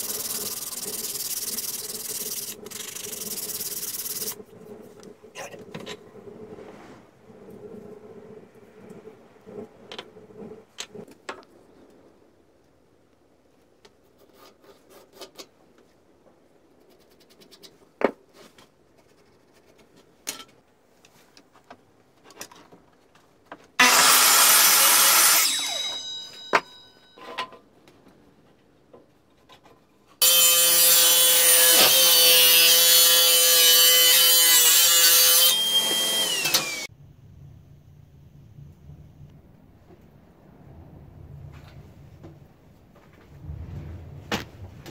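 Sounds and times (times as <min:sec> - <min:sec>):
mitre saw cutting wood: 0:23.8 - 0:26.0, 0:30.2 - 0:36.9
table saw whining: 0:23.8 - 0:26.6, 0:30.2 - 0:36.9.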